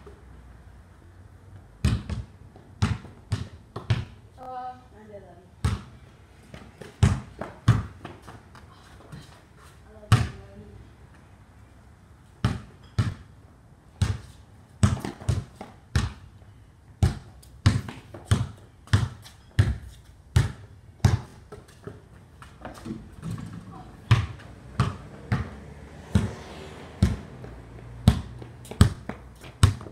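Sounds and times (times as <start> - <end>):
basketball bouncing on concrete: 1.8 - 4.2, 5.6 - 8.4, 10.0 - 10.5, 12.4 - 13.3, 14.0 - 16.3, 17.0 - 29.9.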